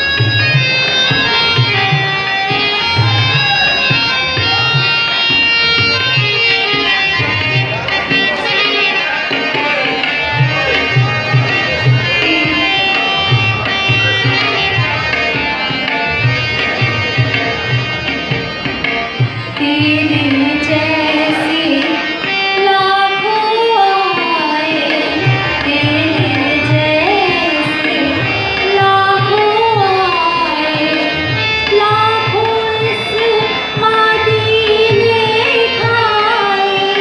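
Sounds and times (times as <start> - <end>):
harmonium: 0.0 - 37.0
woman singing devotional song: 19.3 - 37.0.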